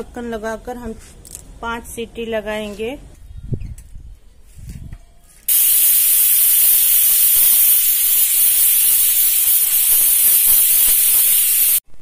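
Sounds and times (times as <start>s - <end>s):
pressure cooker whistling: 5.5s - 11.8s.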